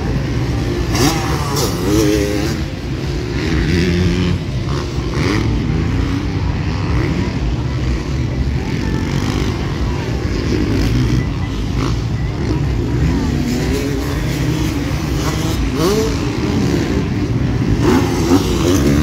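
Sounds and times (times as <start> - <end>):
motocross bike engines revving: 0.0 - 19.0.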